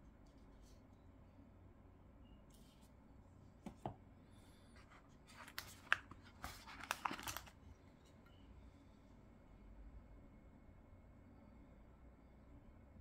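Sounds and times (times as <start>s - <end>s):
packaging clicks: 5.3s - 7.6s
packaging crackling and tearing: 5.3s - 7.6s.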